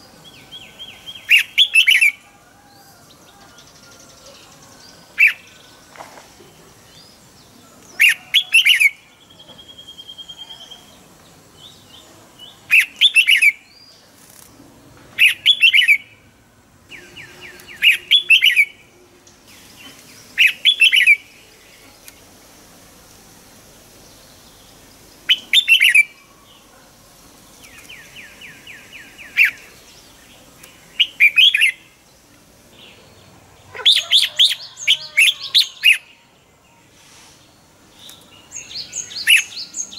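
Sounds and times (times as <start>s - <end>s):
bird whistled song: 0.6s - 2.2s, 12.7s - 13.7s, 15.2s - 16.1s, 16.9s - 18.8s, 20.4s - 21.3s, 25.3s - 26.2s, 31.0s - 31.8s, 38.1s - 39.9s.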